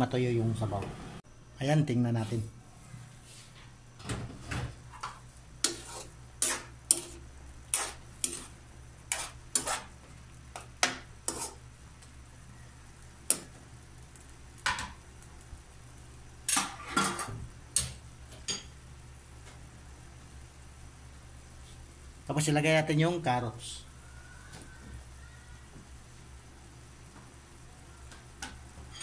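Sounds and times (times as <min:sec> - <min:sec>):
metal spoon scraping wok: 0:05.0 - 0:10.0, 0:11.2 - 0:11.6.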